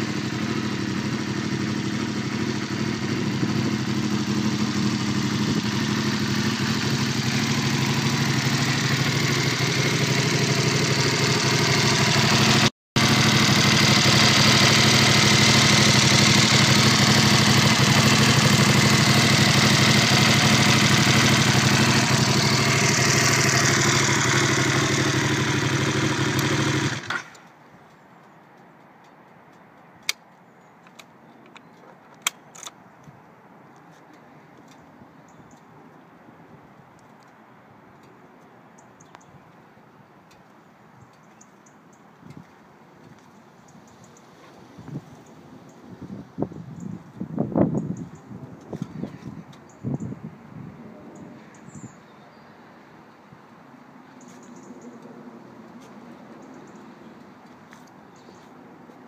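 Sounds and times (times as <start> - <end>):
motorcycle engine idling: 0.0 - 28.0.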